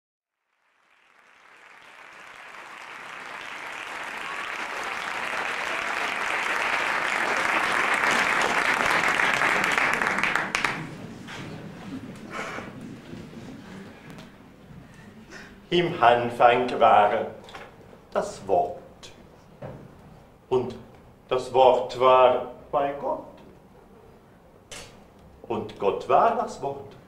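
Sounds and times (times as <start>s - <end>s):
audience applause: 0.4s - 13.3s.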